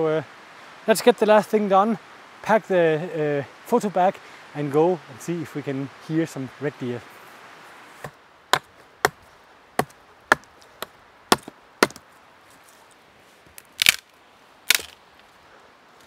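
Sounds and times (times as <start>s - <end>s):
hatchet chopping wood: 8.0s - 9.2s, 9.8s - 12.0s, 13.8s - 14.0s, 14.7s - 15.0s.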